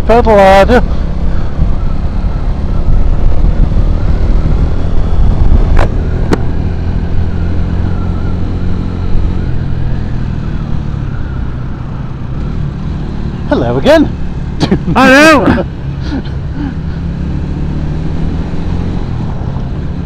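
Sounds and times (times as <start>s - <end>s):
road noise: 0.0s - 20.0s.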